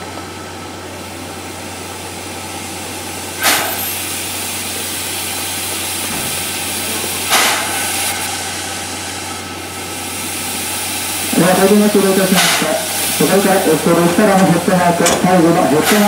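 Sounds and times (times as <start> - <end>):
steam locomotive hissing: 0.3 - 16.0
short sharp steam bursts: 3.3 - 16.0.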